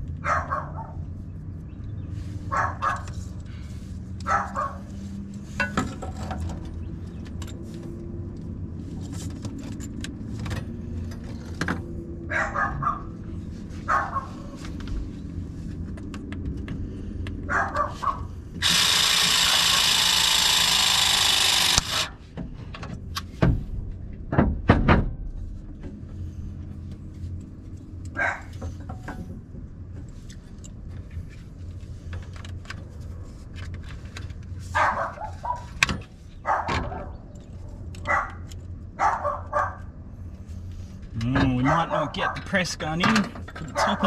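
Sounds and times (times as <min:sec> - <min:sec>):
press tool running: 0:18.6 - 0:22.2.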